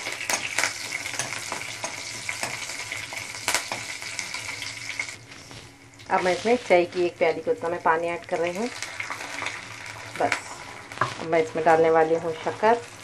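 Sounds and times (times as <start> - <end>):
spices sizzling in hot oil: 0.0 - 13.0
spoon tapping against pan: 0.3 - 3.9.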